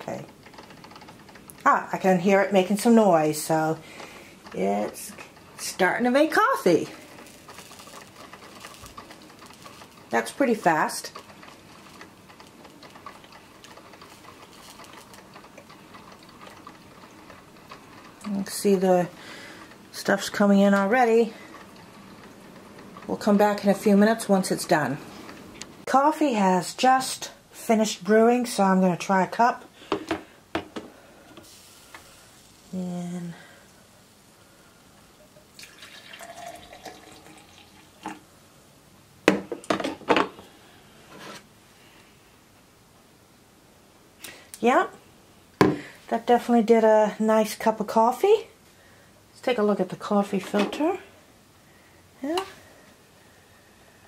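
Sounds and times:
coffee maker ticking and crackling: 0:00.0 - 0:29.6, 0:30.5 - 0:38.2
coffee pouring into mug: 0:35.2 - 0:38.2.

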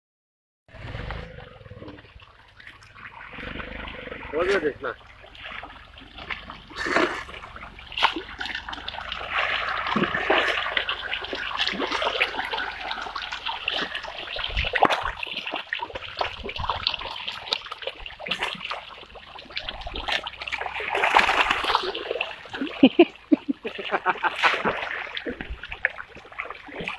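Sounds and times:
fish splashing at water surface: 0:00.8 - 0:26.9
loud water slaps: 0:20.0 - 0:22.7, 0:23.9 - 0:26.9.

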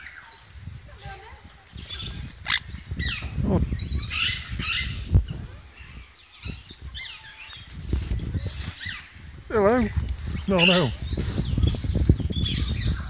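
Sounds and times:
parrots chirping and squawking: 0:01.8 - 0:05.1, 0:08.5 - 0:13.0.

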